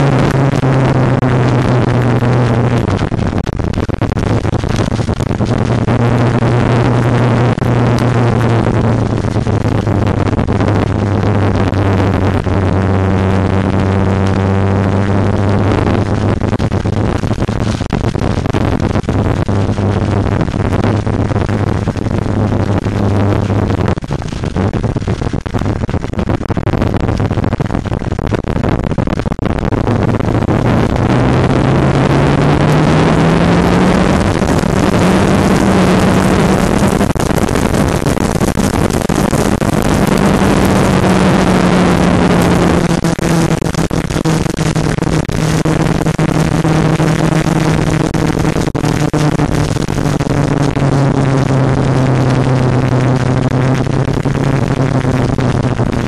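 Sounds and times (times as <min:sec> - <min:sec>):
wind rush over microphone: 0:00.0 - 0:56.0
motorcycle engine running: 0:04.2 - 0:16.4, 0:29.9 - 0:55.2.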